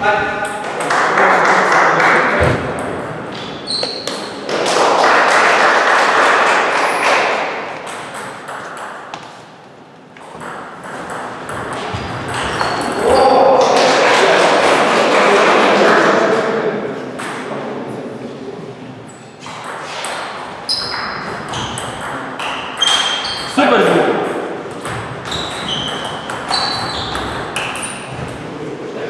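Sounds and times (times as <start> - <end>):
table tennis balls clicking: 10.2 - 13.0.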